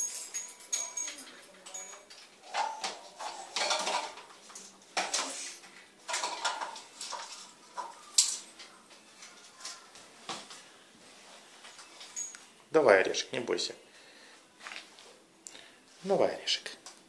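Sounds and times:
small metal bell jingling: 0.0s - 2.8s, 11.8s - 12.5s.

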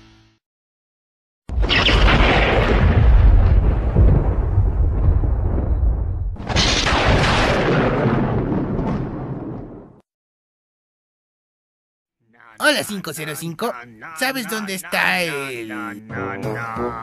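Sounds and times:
cartoon thunderclap rumbling: 1.5s - 10.0s.

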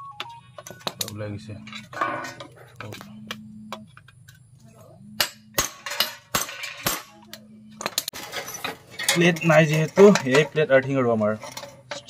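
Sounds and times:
thin metal sheet crinkling: 8.1s - 10.6s.

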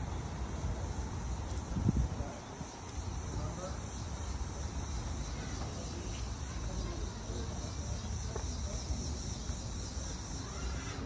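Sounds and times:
wind rumbling on microphone: 0.0s - 3.0s
insects buzzing: 0.0s - 11.0s.

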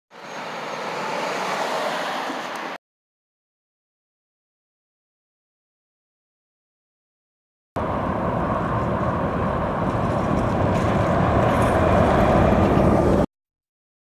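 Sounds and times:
vehicle and road rumble: 0.1s - 2.8s, 7.8s - 13.3s.

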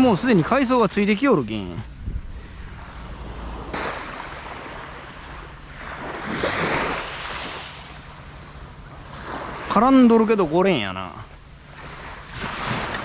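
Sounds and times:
small waves washing onto beach: 0.0s - 13.0s
fishing rod swishing through cast: 3.6s - 4.8s.

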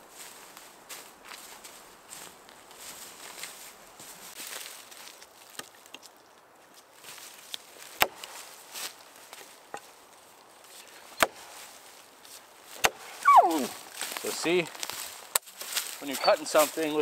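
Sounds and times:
rustling: 0.2s - 17.0s
axe chopping log: 8.0s - 8.3s, 11.2s - 11.4s, 12.8s - 13.1s.

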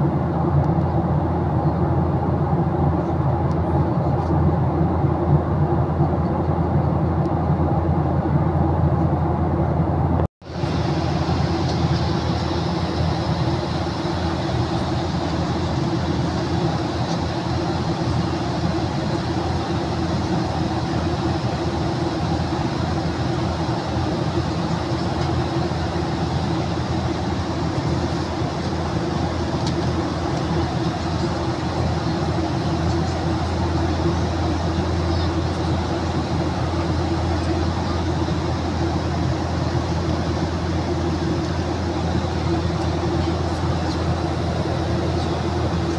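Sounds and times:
airplane cabin engine rumble: 0.0s - 45.9s
airflow hiss: 10.5s - 45.9s.

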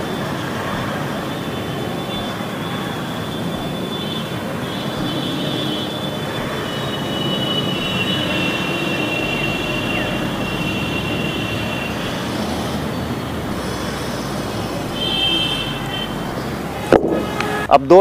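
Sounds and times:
high squealing tones: 0.0s - 17.7s
steady rumbling: 7.7s - 17.6s.

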